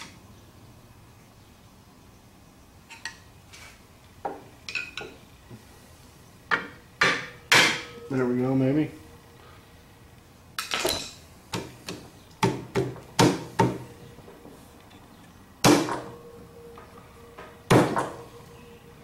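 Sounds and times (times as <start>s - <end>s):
sharp metallic knocks: 6.5s - 8.2s.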